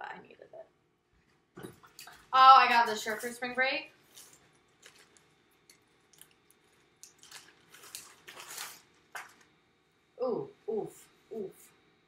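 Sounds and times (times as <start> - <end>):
plastic bag rustling: 4.0 - 9.5.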